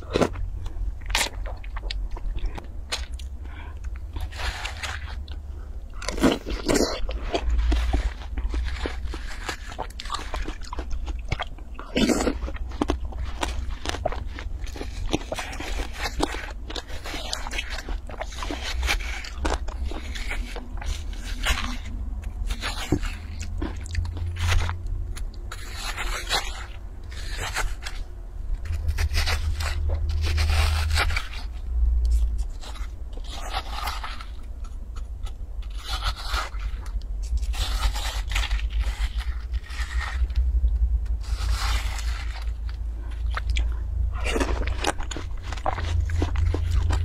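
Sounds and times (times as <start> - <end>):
wet crunching of melon: 0.0 - 47.0
spoon scraping watermelon flesh: 12.0 - 40.4.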